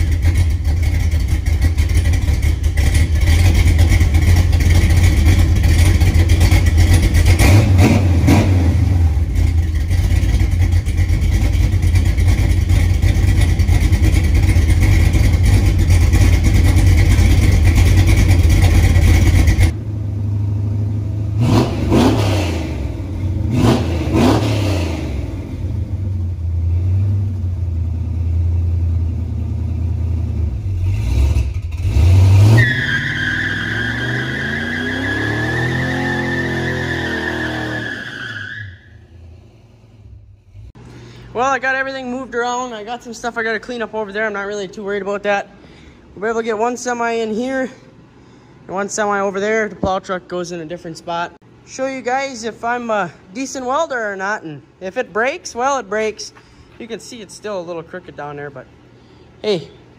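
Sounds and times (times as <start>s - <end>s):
pickup truck engine revving: 0.0s - 40.7s.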